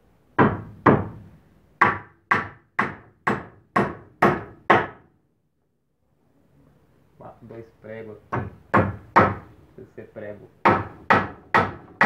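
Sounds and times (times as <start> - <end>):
hammer striking nail into wood: 0.4 - 5.1, 8.3 - 9.5, 10.6 - 12.0.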